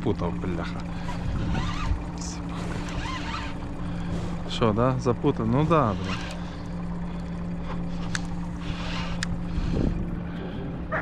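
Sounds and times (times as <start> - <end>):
boat motor idling: 0.0 - 11.0
water noise: 0.0 - 11.0
wind: 0.0 - 11.0.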